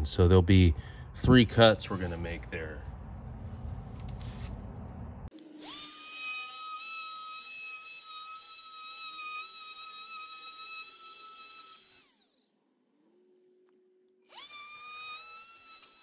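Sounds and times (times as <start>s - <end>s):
low rumble: 0.0s - 5.3s
oscillating multi-tool whine: 5.3s - 16.0s.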